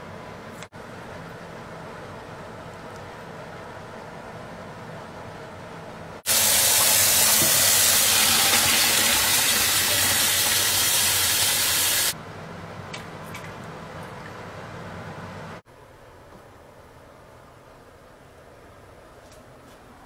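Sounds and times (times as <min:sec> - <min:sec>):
tap water running into colander: 0:06.3 - 0:12.2.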